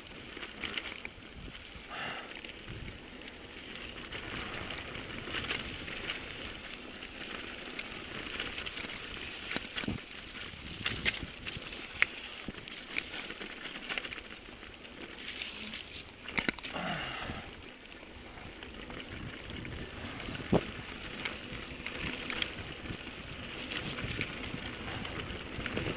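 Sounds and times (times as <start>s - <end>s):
bike clicking and rattling: 0.0s - 25.9s
bike tyres crunching on trail: 0.0s - 25.9s.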